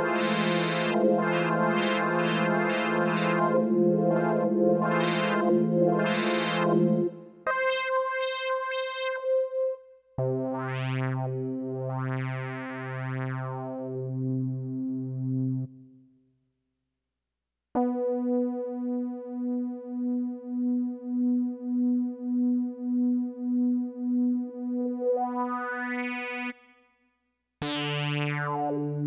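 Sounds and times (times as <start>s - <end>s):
pulsing synth chords: 0.0s - 7.7s.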